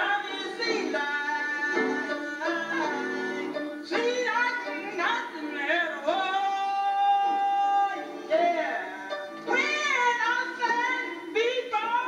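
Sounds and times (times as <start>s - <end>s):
woman singing gospel: 0.0s - 12.0s.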